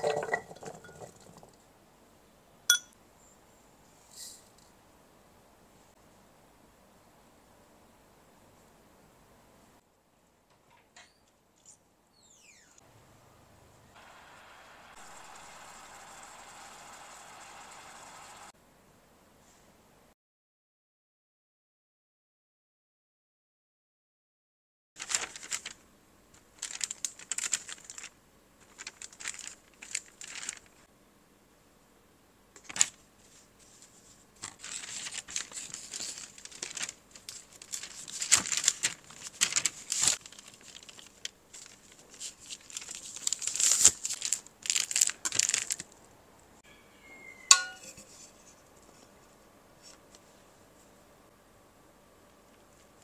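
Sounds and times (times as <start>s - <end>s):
parchment paper crinkling: 25.0s - 30.8s, 32.6s - 46.0s
pie pan knocking down: 47.5s - 48.0s.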